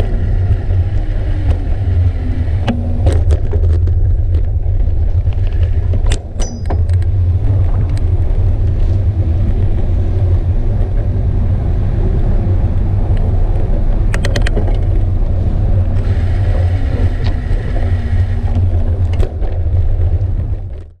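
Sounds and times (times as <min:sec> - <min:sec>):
high whine: 0:00.0 - 0:21.0
wind and road rumble: 0:00.0 - 0:21.0
bicycle knocks and rattles: 0:02.5 - 0:11.4, 0:13.1 - 0:21.0.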